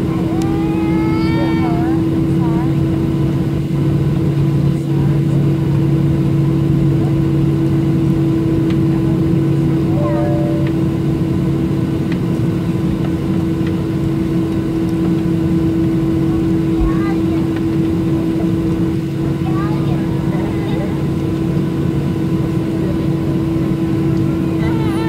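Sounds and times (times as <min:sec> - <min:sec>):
jet engines idling cabin drone: 0:00.0 - 0:25.0
steady humming tones: 0:07.0 - 0:25.0.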